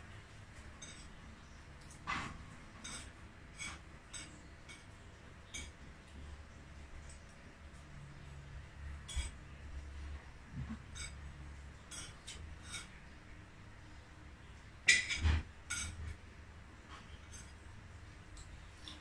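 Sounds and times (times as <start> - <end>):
cutlery clinking against a plate: 0.6 - 5.9, 9.0 - 9.6, 10.5 - 13.1, 14.8 - 16.2, 16.9 - 17.6.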